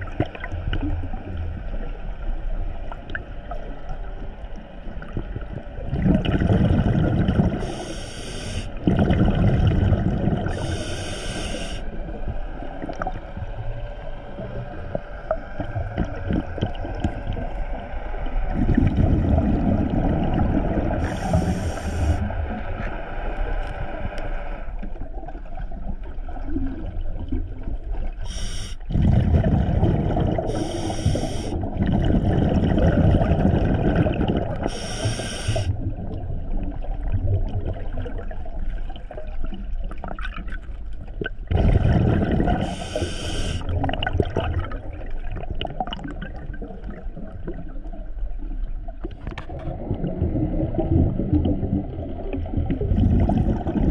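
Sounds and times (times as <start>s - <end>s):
gurgling exhaled bubbles: 4.8s - 24.1s, 24.8s - 53.9s
regulator hissing inhalations: 7.6s - 8.8s, 10.6s - 11.9s, 21.0s - 22.3s, 28.2s - 28.9s, 30.5s - 31.6s, 34.7s - 35.7s, 42.6s - 43.7s.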